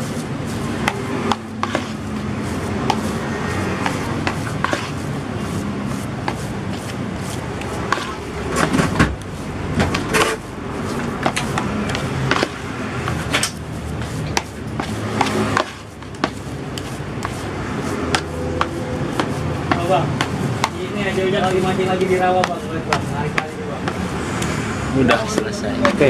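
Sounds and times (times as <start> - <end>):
plastic scoop scraping a basin: 0.0 - 9.0
irregular clicks and taps: 18.1 - 20.8.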